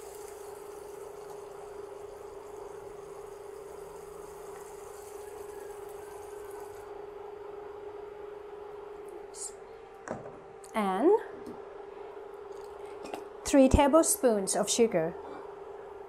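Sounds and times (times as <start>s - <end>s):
even hiss: 0.0s - 6.9s
liquid pouring: 0.0s - 6.9s
induction cooktop hum: 0.0s - 16.0s.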